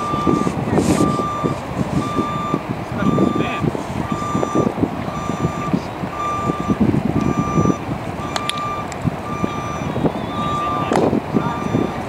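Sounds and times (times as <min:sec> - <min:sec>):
vehicle backup alarm beeping: 0:00.0 - 0:12.0.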